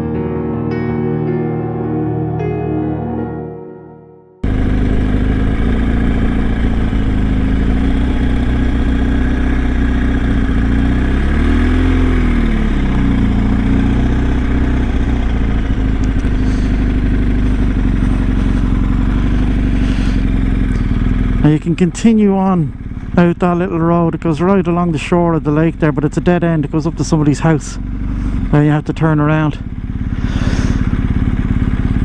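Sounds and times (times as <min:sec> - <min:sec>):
motorcycle engine running: 0:04.4 - 0:32.0.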